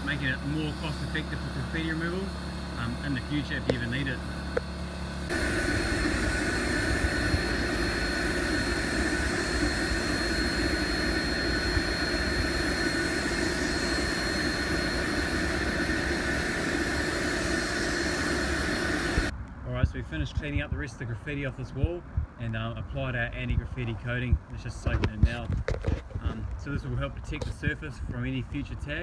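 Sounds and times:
powered sprayer whining and hissing: 0.0s - 19.3s.

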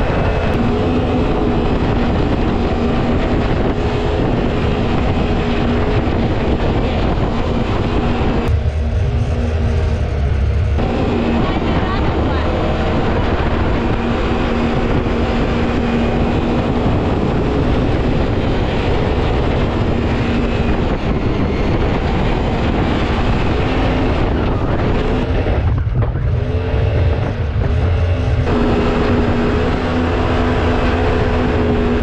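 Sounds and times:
water rushing along hull: 0.0s - 10.1s, 10.7s - 32.0s
boat engine running: 0.0s - 32.0s.

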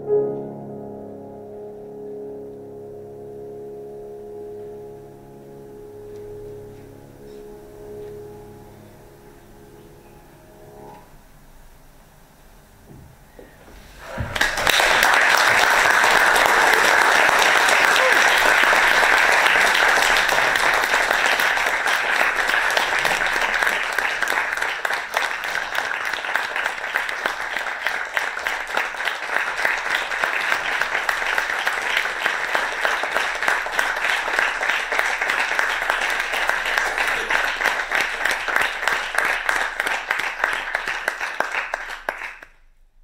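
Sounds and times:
audience applauding: 14.0s - 42.7s.

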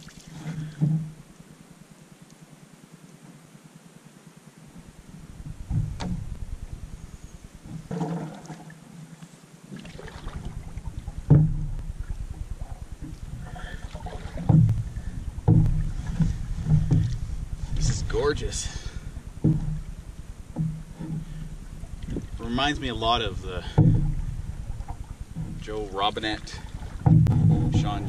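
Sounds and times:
paddle strokes in water: 0.0s - 1.7s, 4.8s - 28.0s
wind rumble on microphone: 4.7s - 8.2s, 9.9s - 28.0s.

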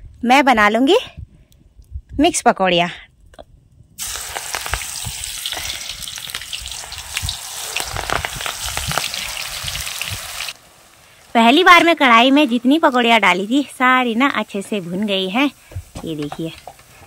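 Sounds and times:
batter frying in hot oil: 4.0s - 17.0s.

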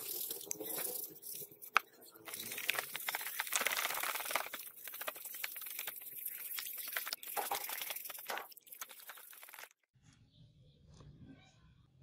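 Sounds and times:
bristle brush scrubbing plastic: 0.0s - 9.8s.

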